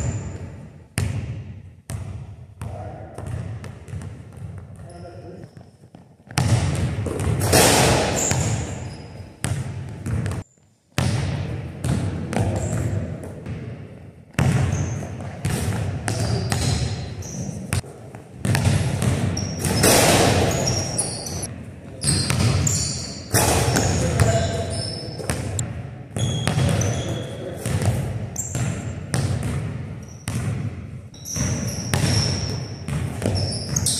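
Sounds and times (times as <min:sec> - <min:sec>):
shoe squeaks: 0:00.0 - 0:00.6, 0:07.5 - 0:09.4, 0:12.5 - 0:13.0, 0:14.6 - 0:15.2, 0:16.1 - 0:17.8, 0:19.4 - 0:25.6, 0:26.2 - 0:29.0, 0:30.0 - 0:30.4, 0:31.1 - 0:33.9
basketball bouncing on hardwood floor: 0:01.0 - 0:04.9, 0:05.9 - 0:08.7, 0:09.4 - 0:10.4, 0:11.0 - 0:13.7, 0:14.3 - 0:16.9, 0:18.4 - 0:20.8, 0:26.2 - 0:33.9.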